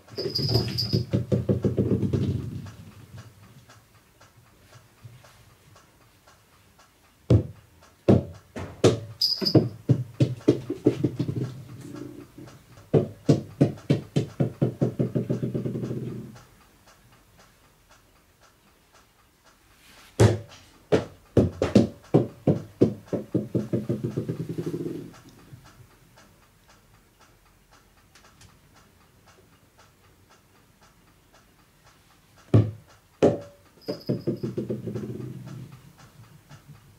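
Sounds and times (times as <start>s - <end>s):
rubber balls bouncing on wood floor: 0.1s - 2.7s, 7.3s - 16.4s, 20.2s - 25.1s, 32.5s - 35.7s.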